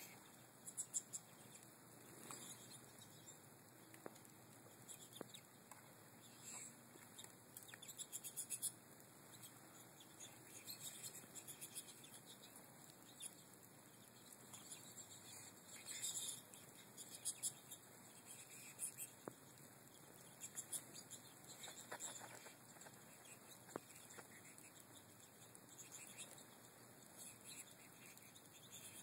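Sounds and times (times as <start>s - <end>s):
birds twittering and chirping: 0.0s - 29.0s.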